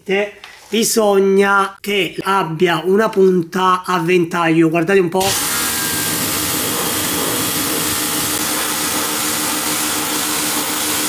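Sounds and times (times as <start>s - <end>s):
pump motor hum: 5.3s - 11.0s
water spray hissing: 5.7s - 8.7s.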